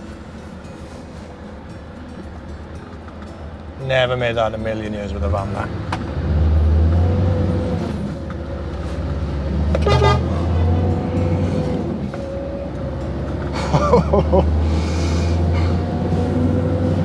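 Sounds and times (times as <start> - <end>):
diesel truck engine running: 0.0 - 17.0
short horn toot: 9.8 - 10.6.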